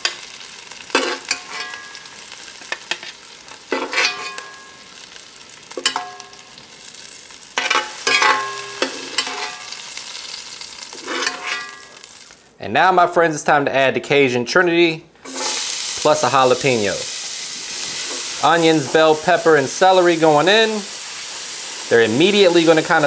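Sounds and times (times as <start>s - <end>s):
chicken sizzling in a skillet: 0.0s - 12.4s, 15.3s - 23.0s
metal utensil clinking on pan: 0.9s - 2.1s, 3.7s - 4.8s, 5.8s - 6.5s, 7.6s - 9.7s, 11.0s - 11.9s.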